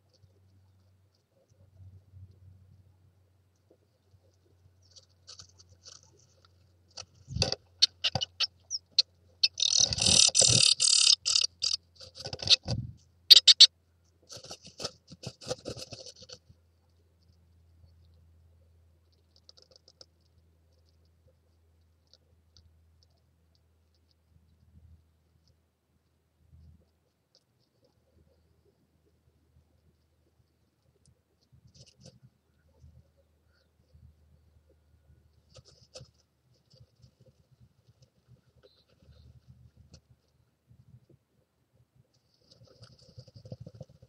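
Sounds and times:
bird rustling nest lining: 4.9 - 13.6, 14.3 - 16.4.

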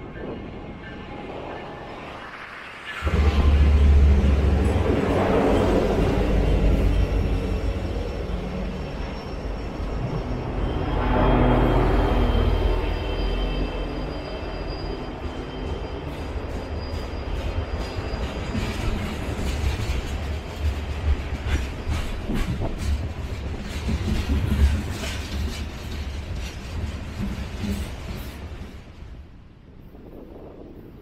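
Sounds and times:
train rumbling past: 0.0 - 31.0
wheel squeal: 5.0 - 20.0
wheels clicking over rail joints: 16.1 - 29.1.

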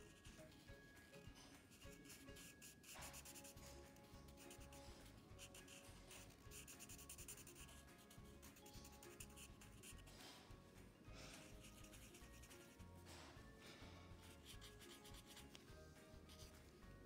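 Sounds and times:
faint background music: 0.0 - 17.0
marker rubbing on paper: 1.6 - 10.4, 11.3 - 12.9, 14.2 - 15.6.

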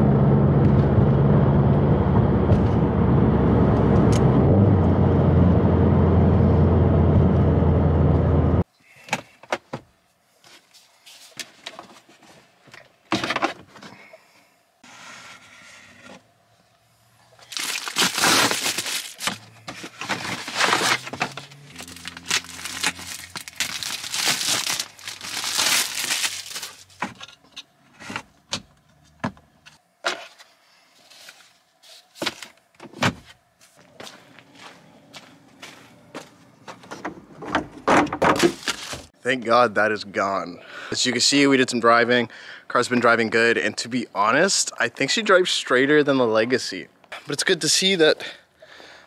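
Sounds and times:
cardboard box scraping: 17.8 - 26.9.

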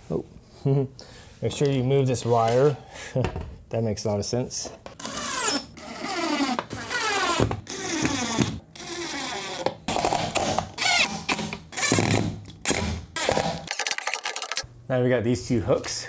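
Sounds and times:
power drill driving screws: 5.0 - 9.7.

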